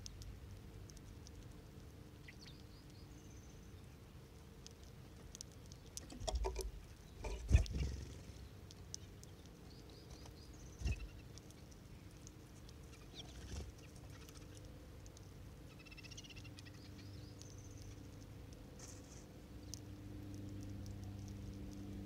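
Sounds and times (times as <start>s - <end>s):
finches chirping and twittering: 2.2s - 4.0s, 5.8s - 21.4s
wing flutters and thumps: 7.2s - 8.1s.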